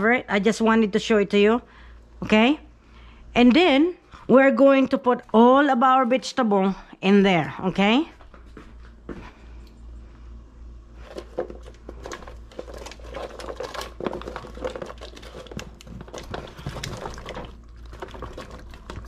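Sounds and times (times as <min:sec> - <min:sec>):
vegetables dropping into metal pot: 0:11.1 - 0:19.0.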